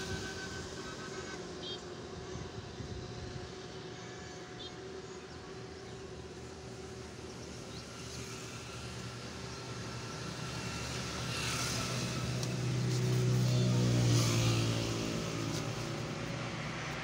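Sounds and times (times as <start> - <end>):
vehicle engine running: 5.7 - 17.0.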